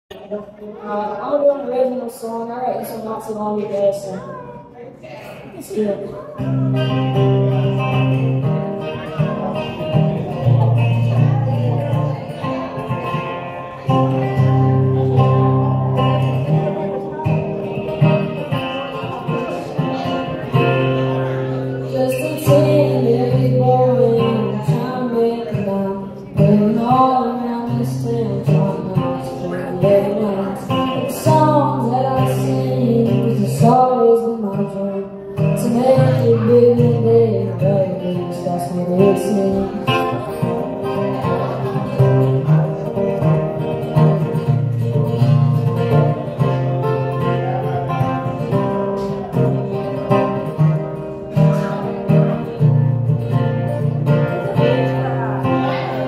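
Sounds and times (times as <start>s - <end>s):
acoustic guitar: 0.1s - 56.0s
boy singing into a microphone: 21.8s - 41.7s.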